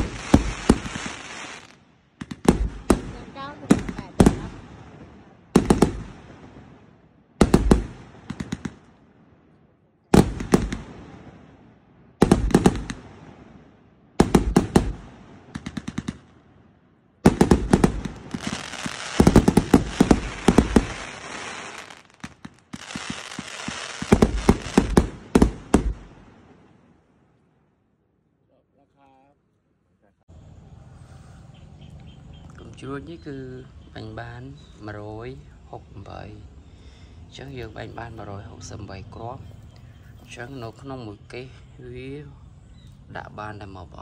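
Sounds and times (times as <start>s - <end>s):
fireworks hiss: 0.0s - 1.8s, 17.3s - 26.3s
fireworks bangs: 0.0s - 9.2s, 10.1s - 16.5s, 17.2s - 27.1s.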